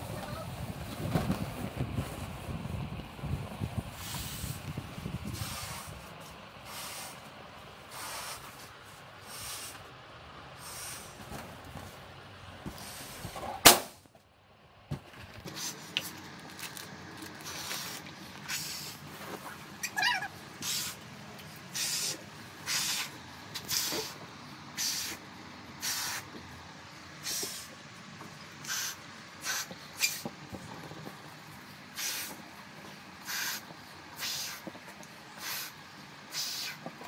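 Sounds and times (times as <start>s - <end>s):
breath puffs into balloon: 3.9s - 7.3s, 7.9s - 9.9s, 10.6s - 11.3s, 12.7s - 13.4s, 17.4s - 19.1s, 20.6s - 21.0s, 21.7s - 25.2s, 25.8s - 26.4s, 27.2s - 27.7s, 28.6s - 30.3s, 31.9s - 32.4s, 33.2s - 37.0s
balloon bang: 13.6s - 14.0s.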